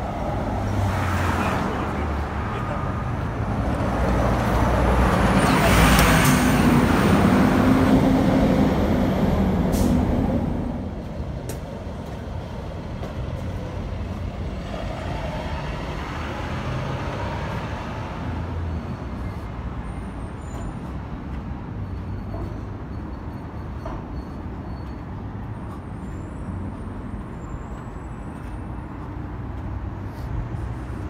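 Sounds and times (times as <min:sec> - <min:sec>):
traffic rumble: 0:00.0 - 0:31.0.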